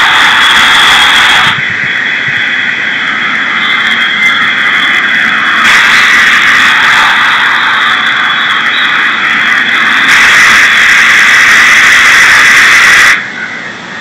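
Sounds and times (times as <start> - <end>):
stadium crowd noise: 0.0 - 14.0.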